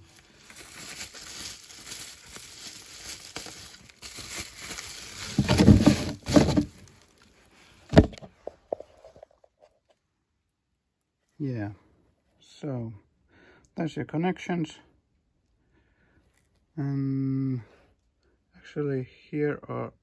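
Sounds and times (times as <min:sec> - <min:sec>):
rustling and scraping handling noise: 0:00.0 - 0:10.1.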